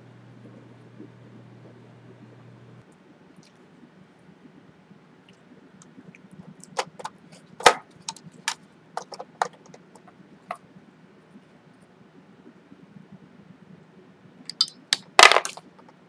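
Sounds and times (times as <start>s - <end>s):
plastic parts clicking and knocking: 6.6s - 10.1s, 14.5s - 15.7s.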